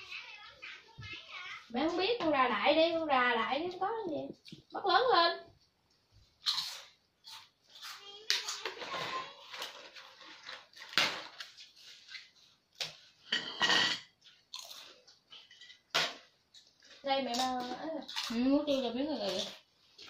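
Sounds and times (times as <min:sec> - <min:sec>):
rice paper crackling and crunching: 0:07.7 - 0:12.6.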